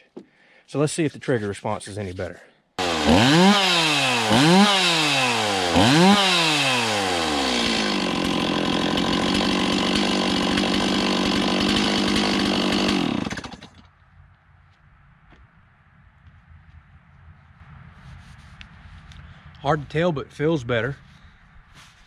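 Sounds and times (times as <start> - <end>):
chainsaw revving and idling: 2.8 - 13.9.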